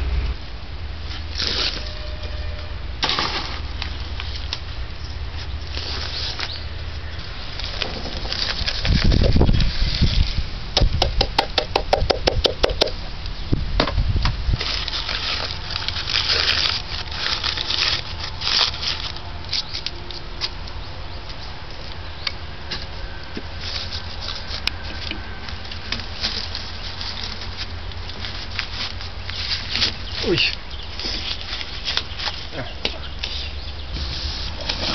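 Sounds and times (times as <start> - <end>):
dull rumble: 0.0 - 1.1
cup scraping loose earth: 1.1 - 4.4, 33.2 - 34.9.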